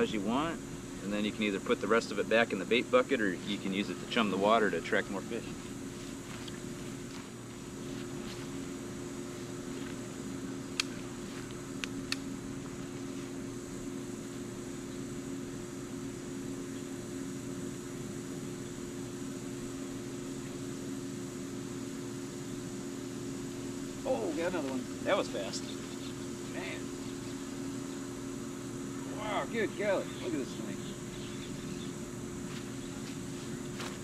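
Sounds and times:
faint high whine: 0.0s - 34.0s
low machine hum: 0.0s - 34.0s.

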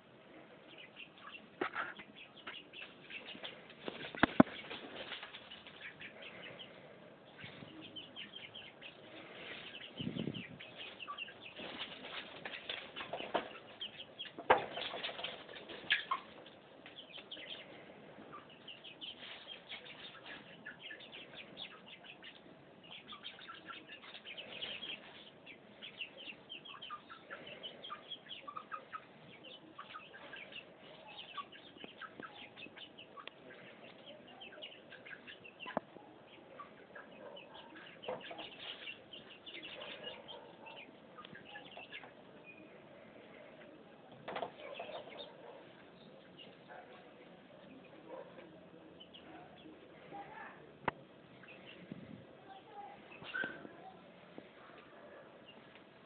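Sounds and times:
chickens chirping: 0.0s - 56.0s.

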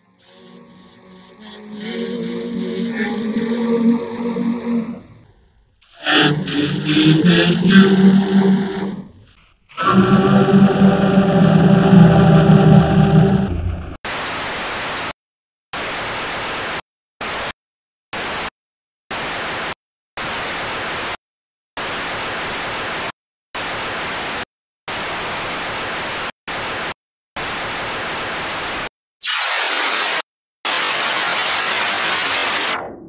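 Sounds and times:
bursts of white noise static: 29.2s - 32.7s.

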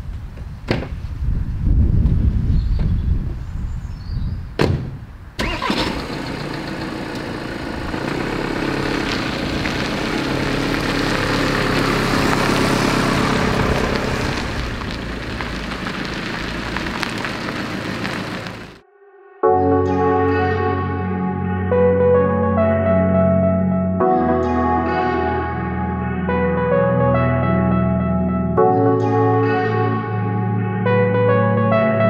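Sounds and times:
car door shutting: 4.6s - 6.2s
van engine starting and driving: 4.6s - 18.8s, 24.0s - 27.8s.

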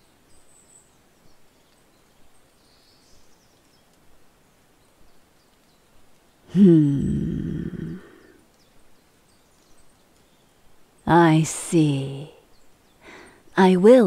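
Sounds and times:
faint outdoor ambience: 0.0s - 14.0s.

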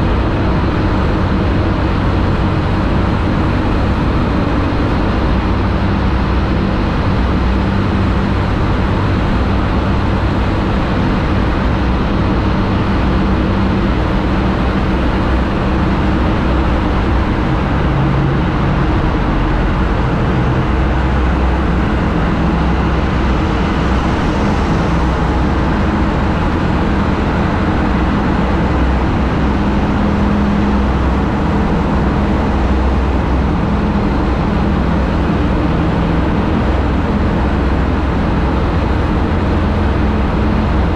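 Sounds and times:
road noise: 0.0s - 40.9s
wind noise: 0.0s - 40.9s.

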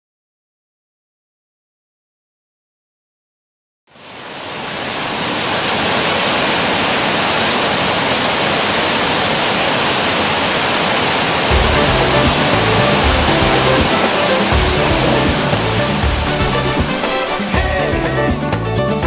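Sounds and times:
water rushing over rocks: 4.0s - 18.6s
music: 11.5s - 19.0s.

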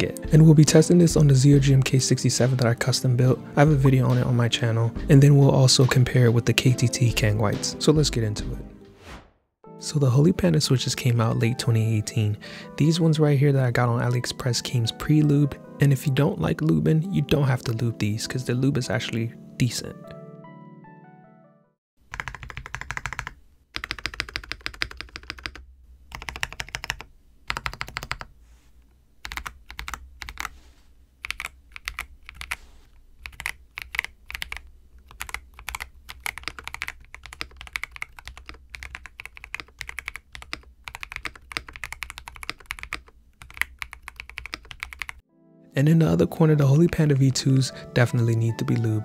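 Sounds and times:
mechanical keyboard typing: 22.1s - 28.3s, 29.2s - 30.5s, 31.2s - 32.6s, 33.2s - 45.2s.

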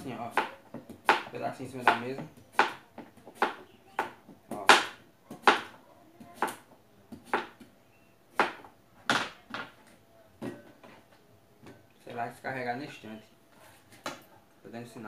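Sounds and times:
knife chopping pumpkin: 0.0s - 7.7s.

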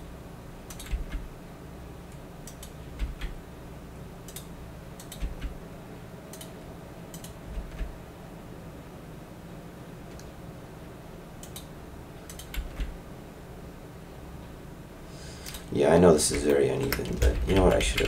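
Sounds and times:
keyboard key presses: 0.7s - 1.3s, 2.5s - 3.4s, 4.3s - 5.6s, 7.1s - 7.9s, 12.3s - 13.0s, 16.3s - 18.0s.

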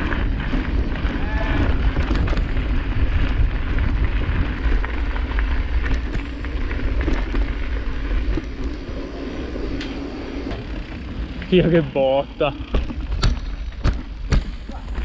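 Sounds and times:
wind buffeting microphone: 0.0s - 11.6s
bike rattling and clicking: 0.0s - 15.0s
tyres crackling over rough ground: 0.0s - 15.0s.

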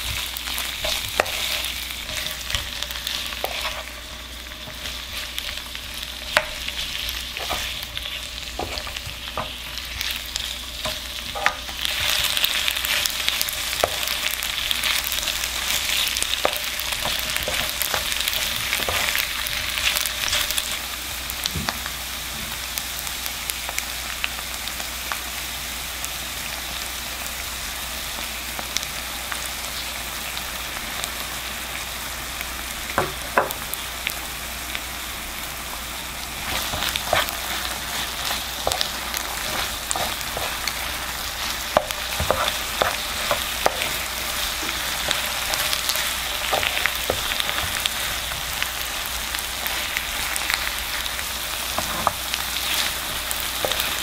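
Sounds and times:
wooden spoon scraping a pan: 0.0s - 5.5s, 6.3s - 20.6s, 36.4s - 48.6s, 51.6s - 54.0s
food sizzling in oil: 0.0s - 54.0s.

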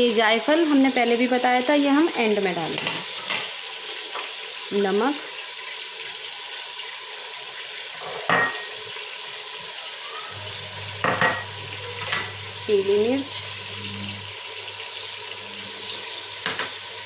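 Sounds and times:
meat sizzling in hot oil: 0.0s - 17.0s.

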